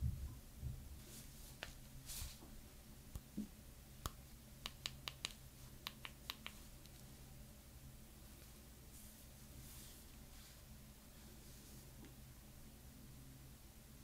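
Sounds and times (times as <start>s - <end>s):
gloves rustling over phone: 1.0s - 2.6s.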